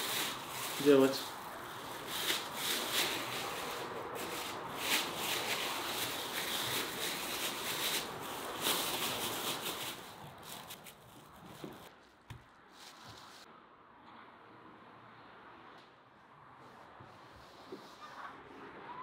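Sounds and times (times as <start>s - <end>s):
plastic bag crinkling and rustling: 0.0s - 13.5s.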